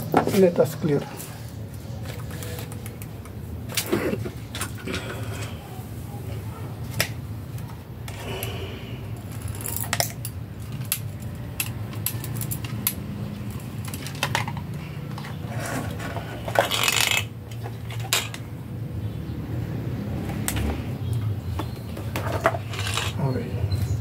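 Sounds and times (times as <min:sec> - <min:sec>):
metal tools clinking and clattering: 0:09.3 - 0:18.4, 0:22.2 - 0:23.4.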